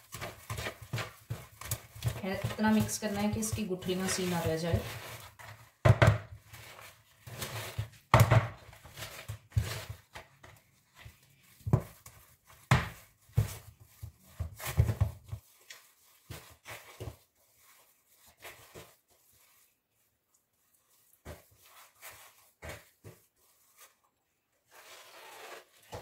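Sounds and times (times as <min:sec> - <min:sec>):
utensil scraping mixing bowl: 0:00.0 - 0:19.6.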